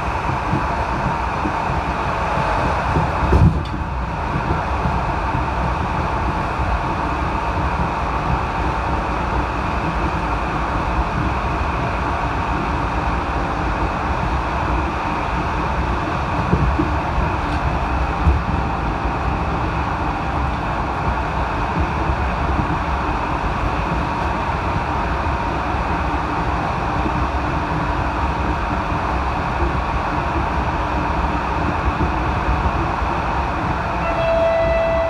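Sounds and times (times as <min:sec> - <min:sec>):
train rolling rumble: 0:00.0 - 0:35.0
train horn held tone: 0:34.0 - 0:35.0.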